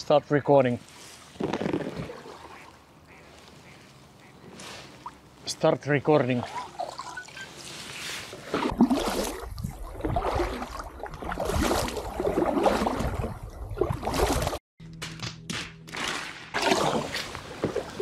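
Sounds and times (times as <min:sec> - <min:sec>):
paddle strokes splashing water: 0:01.4 - 0:03.8, 0:06.4 - 0:14.6, 0:16.6 - 0:18.0.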